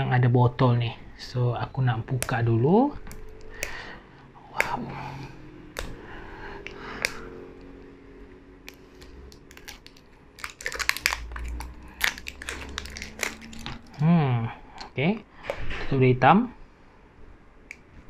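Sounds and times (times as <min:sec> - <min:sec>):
plastic band tearing and crackling: 0:08.7 - 0:14.1.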